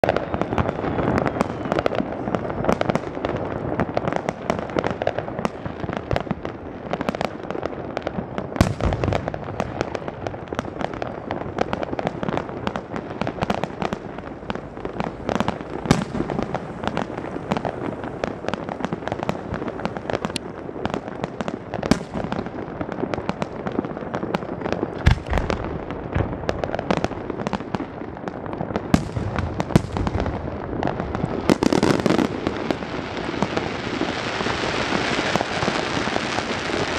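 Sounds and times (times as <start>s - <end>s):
fireworks booms: 0.0s - 36.9s
fireworks crackling: 0.0s - 36.9s.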